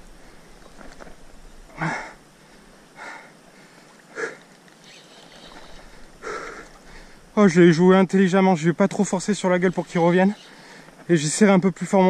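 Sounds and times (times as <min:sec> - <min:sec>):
wind and river hiss: 0:00.0 - 0:12.0
man breathing hard: 0:01.7 - 0:04.4, 0:05.9 - 0:07.3, 0:10.5 - 0:11.0.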